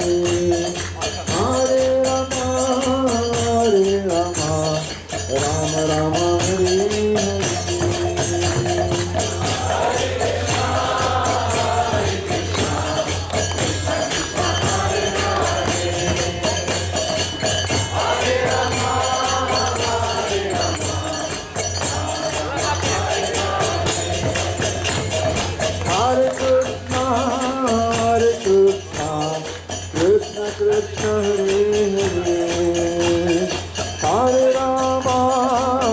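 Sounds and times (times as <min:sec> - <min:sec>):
jingling hand percussion: 0:00.0 - 0:35.9
group chanting: 0:09.0 - 0:25.2.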